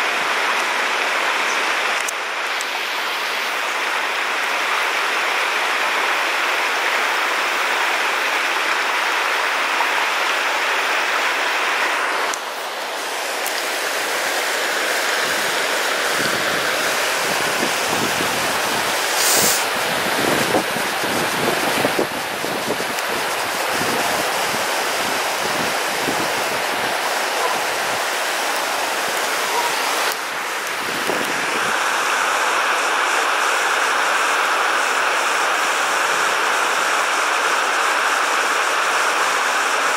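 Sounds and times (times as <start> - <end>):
river rushing over rocks: 0.0 - 39.9.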